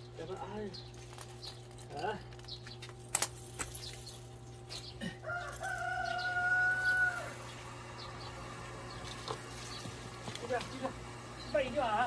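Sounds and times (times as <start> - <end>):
rooster crowing: 5.0 - 7.6.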